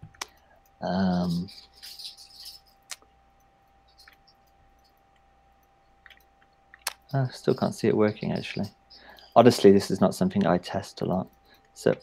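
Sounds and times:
keyboard and mouse clicks: 6.0s - 7.2s.

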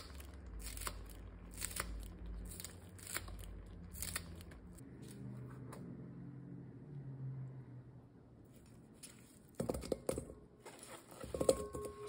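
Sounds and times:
scissors snipping onion stalks: 0.0s - 5.3s.

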